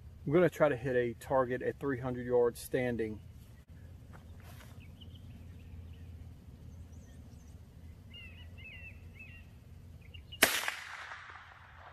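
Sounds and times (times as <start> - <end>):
birds chirping: 0.0 - 10.5
rifle shot with echo: 10.4 - 11.9.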